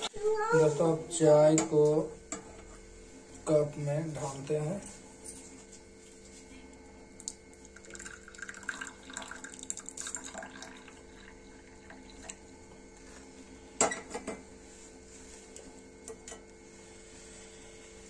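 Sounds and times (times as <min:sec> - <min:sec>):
tea pouring into cup: 0:07.2 - 0:12.7.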